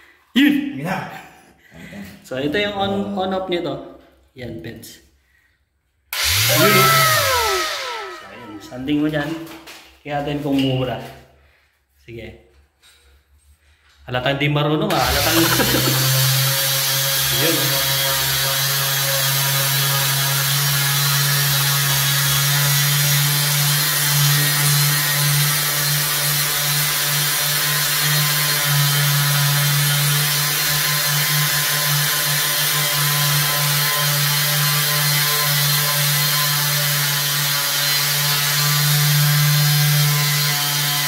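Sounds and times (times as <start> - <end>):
orbital sander motor hum: 6.2 - 8.8, 15.0 - 17.1
sandpaper hissing on wall: 15.2 - 17.7.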